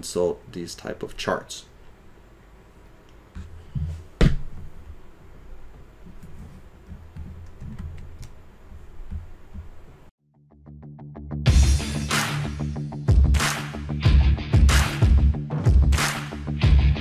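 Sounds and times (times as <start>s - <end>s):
keyboard and mouse clicks: 6.9s - 8.4s
outro music: 10.4s - 17.0s.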